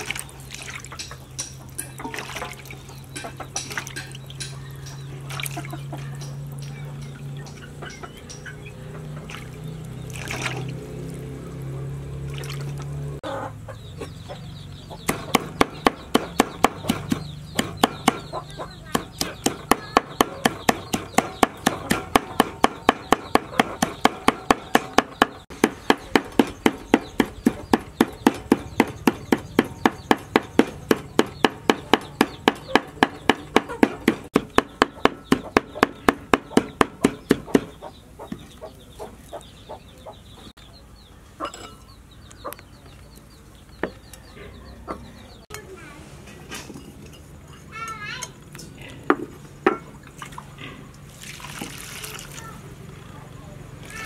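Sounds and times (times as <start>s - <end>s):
cleaver chopping on wooden board: 15.0s - 18.3s, 18.9s - 38.4s.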